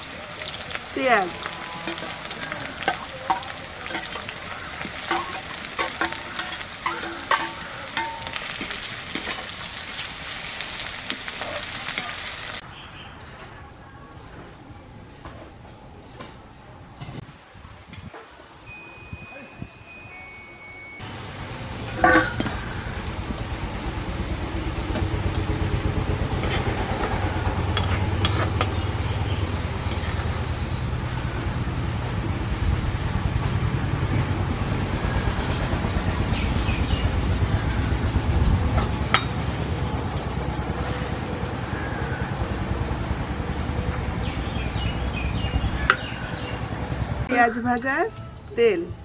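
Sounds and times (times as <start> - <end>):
onions frying in oil: 0.0 - 12.6, 21.0 - 33.6
metal spoon clinking against wok: 1.8 - 9.5.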